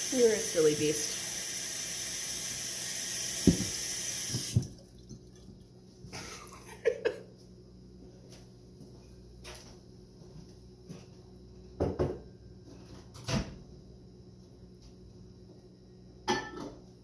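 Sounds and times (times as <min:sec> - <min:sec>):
cupboard doors knocking: 0:03.4 - 0:03.8.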